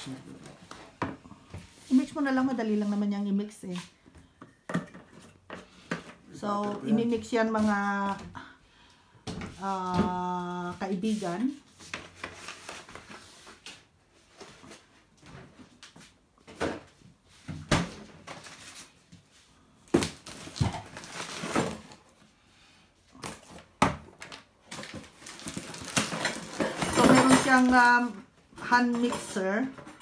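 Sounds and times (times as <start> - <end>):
kitchen knocks and clatters: 4.4 - 8.3, 23.2 - 30.0.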